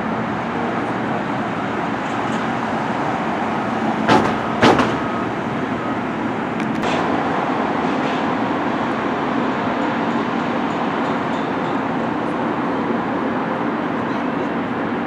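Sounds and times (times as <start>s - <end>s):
train rumbling and rattling: 0.0s - 15.0s
sharp knocks: 4.1s - 5.1s.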